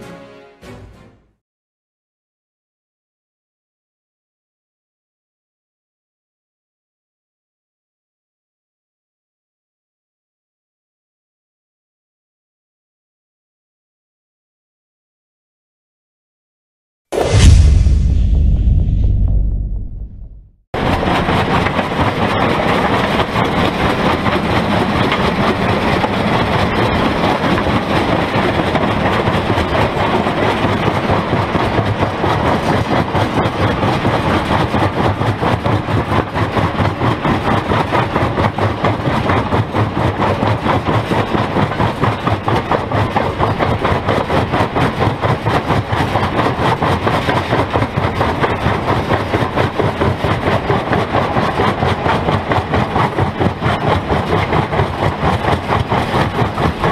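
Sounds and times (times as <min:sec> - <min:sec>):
stone crusher pulsing din: 0:17.2 - 0:56.9.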